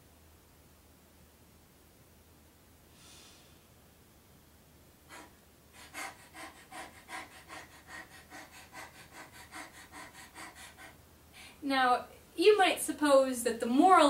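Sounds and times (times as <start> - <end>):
woman imitating dog panting: 5.1 - 11.0.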